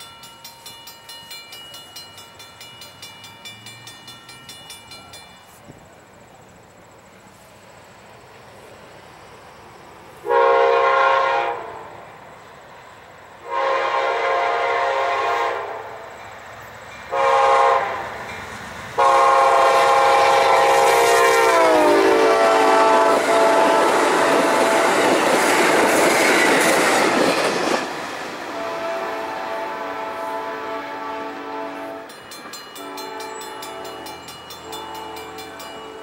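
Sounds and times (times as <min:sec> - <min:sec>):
passenger train passing at speed: 0:00.0 - 0:36.0
locomotive air horn blasts: 0:10.2 - 0:12.0, 0:13.4 - 0:16.0, 0:17.1 - 0:18.1, 0:19.0 - 0:25.1, 0:28.5 - 0:32.1, 0:32.8 - 0:35.9.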